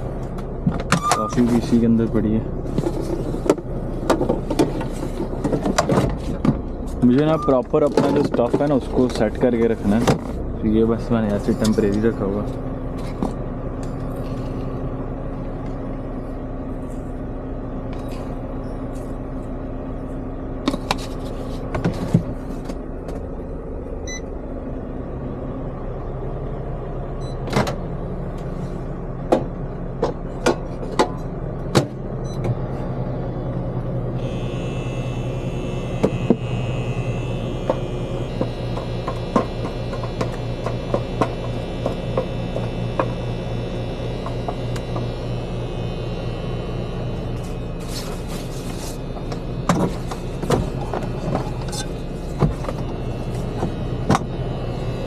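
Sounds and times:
microwave oven humming: 0:00.0 - 0:55.0
short beeps: 0:01.0 - 0:01.4, 0:07.3 - 0:07.7.

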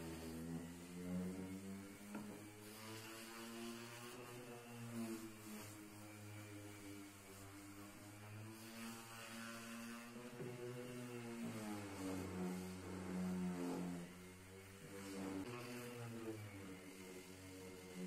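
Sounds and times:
orbital sander on wood: 0:00.0 - 0:18.0.

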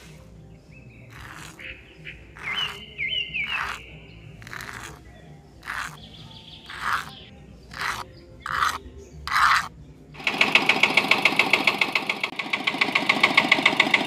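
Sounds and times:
sand pouring: 0:00.0 - 0:00.4, 0:01.0 - 0:01.6, 0:02.3 - 0:05.0, 0:05.6 - 0:06.0, 0:06.6 - 0:09.7
toy shovel scooping sand: 0:00.0 - 0:12.1.

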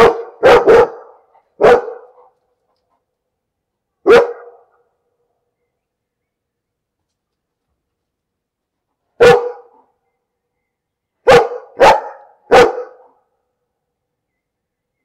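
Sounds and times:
dog barking: 0:00.0 - 0:02.4, 0:04.0 - 0:04.8, 0:09.2 - 0:09.9, 0:11.2 - 0:13.2.

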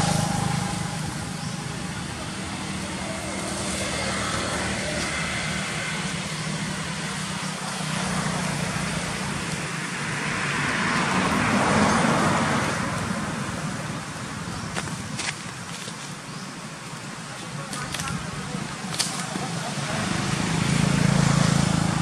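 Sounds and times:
vehicle passing: 0:00.0 - 0:14.1, 0:19.4 - 0:22.0
road traffic: 0:00.0 - 0:22.0.

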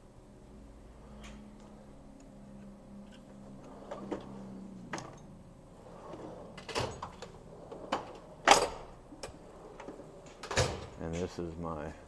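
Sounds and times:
tool chest drawers rolling and clunking: 0:03.2 - 0:11.5.

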